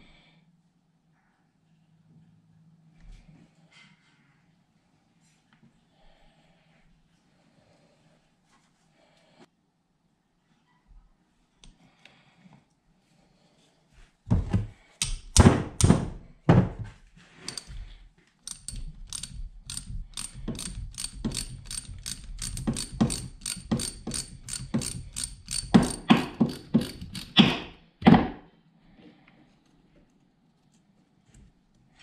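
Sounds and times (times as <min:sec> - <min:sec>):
heavy clicks and knocks: 0:14.3 - 0:28.4
hand ratchet clicking: 0:15.0 - 0:16.0, 0:17.5 - 0:27.8.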